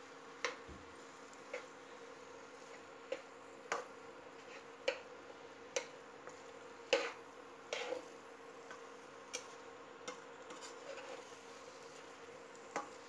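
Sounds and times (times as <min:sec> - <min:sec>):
faint steady hum: 0:00.0 - 0:13.0
metal spatula scraping a pan: 0:04.4 - 0:05.0, 0:06.8 - 0:08.2, 0:10.1 - 0:12.0.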